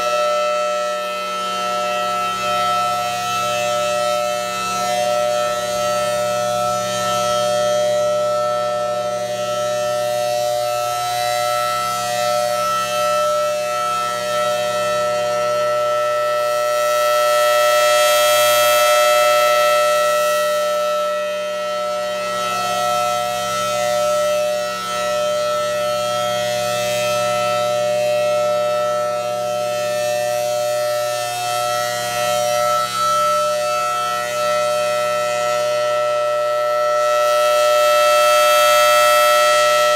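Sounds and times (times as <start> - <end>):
rotating warning siren chord: 0.0 - 39.9.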